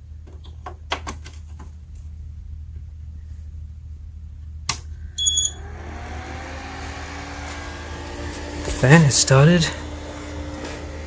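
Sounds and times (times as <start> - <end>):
steady low hum: 1.5 - 11.0
cooling fan whine: 1.6 - 11.0
short high electronic beep: 5.0 - 5.6.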